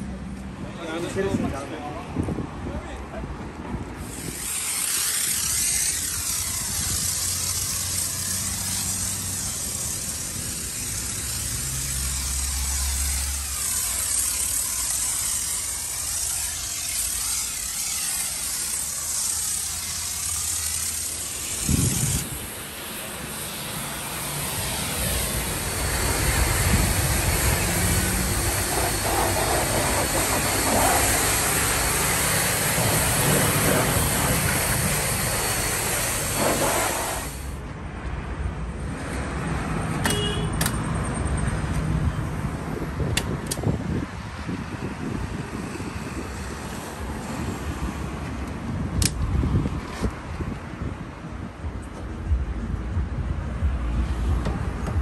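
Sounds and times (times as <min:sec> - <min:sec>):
pressure washer jet spraying: 0:04.0 - 0:37.6.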